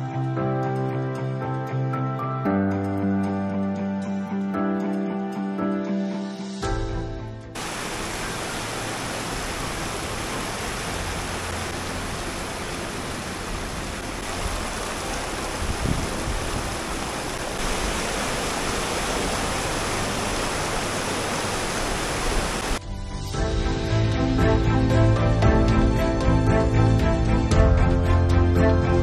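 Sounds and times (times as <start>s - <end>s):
river water splashing over rocks: 7.6s - 22.8s.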